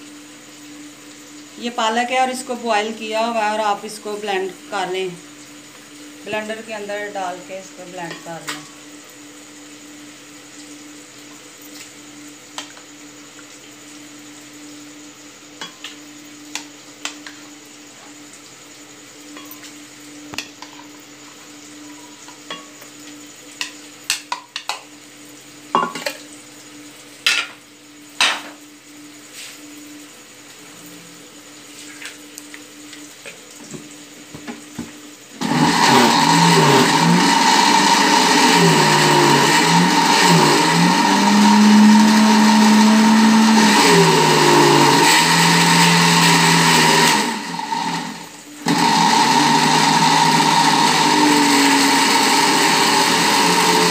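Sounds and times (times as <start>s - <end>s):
blender motor running: 35.4s - 53.9s.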